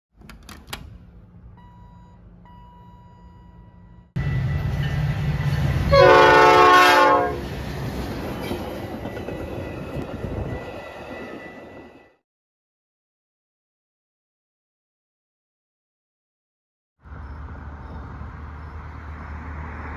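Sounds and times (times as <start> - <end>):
diesel locomotive rumble: 0.7 - 11.9
train horn blast: 5.9 - 7.5.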